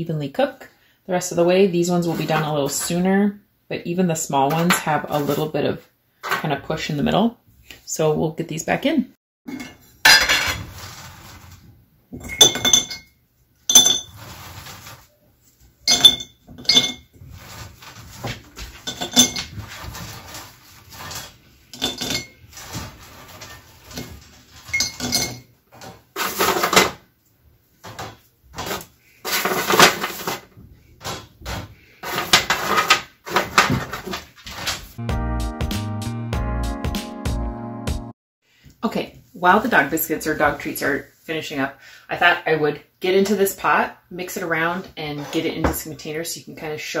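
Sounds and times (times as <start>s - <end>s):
glass clinking: 12.2s - 14.1s, 15.9s - 17.1s, 18.9s - 19.5s, 24.7s - 25.4s.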